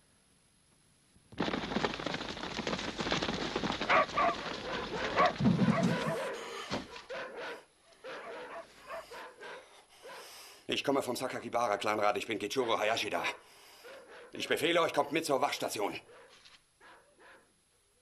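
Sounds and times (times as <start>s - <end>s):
running footsteps and scuffling: 1.4s - 7.0s.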